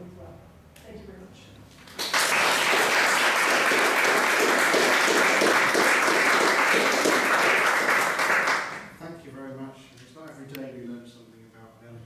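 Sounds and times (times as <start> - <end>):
audience applauding: 1.8 - 9.0.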